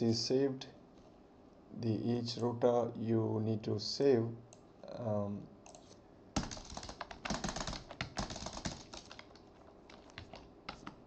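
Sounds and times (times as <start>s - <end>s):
computer keyboard typing: 5.7s - 11.0s.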